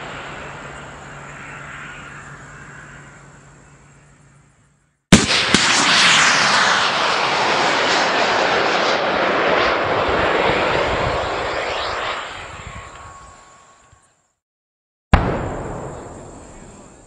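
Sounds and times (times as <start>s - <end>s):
missile motor ignition bang: 5.1s - 9.1s, 15.1s - 16.8s
missile rushing noise: 5.1s - 13.8s, 15.1s - 16.8s.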